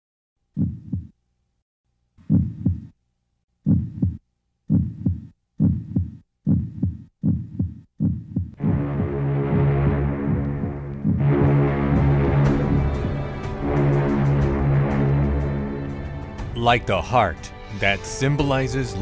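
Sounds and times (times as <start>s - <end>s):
heartbeat thumps: 0.6s - 1.1s, 2.2s - 2.9s, 3.7s - 16.3s.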